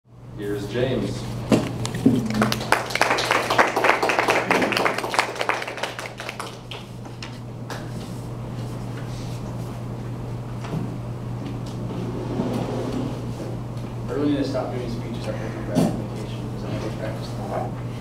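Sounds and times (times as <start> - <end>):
steady low hum: 0.1 - 18.0
small audience applauding: 2.2 - 7.9.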